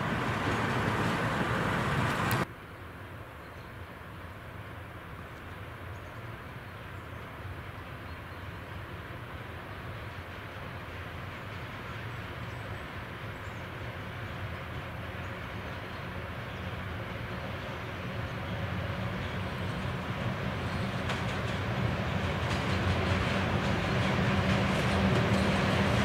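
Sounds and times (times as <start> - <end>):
wheels clicking over rails: 0.0 - 2.4, 19.2 - 26.0
freight train approaching: 0.0 - 2.5, 5.7 - 26.0.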